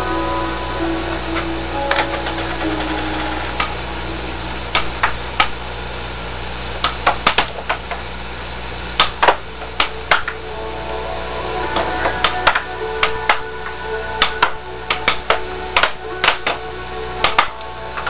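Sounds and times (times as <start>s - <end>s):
low hum: 0.0s - 18.0s
air hockey puck clacking: 4.8s - 5.6s, 6.8s - 8.0s, 9.0s - 10.4s, 11.7s - 13.5s, 14.2s - 16.6s, 17.2s - 18.0s.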